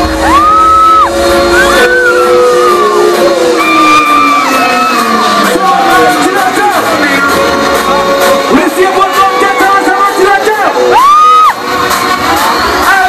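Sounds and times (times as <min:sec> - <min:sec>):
crowd shouting: 0:00.0 - 0:13.0
loud live music: 0:00.0 - 0:13.0.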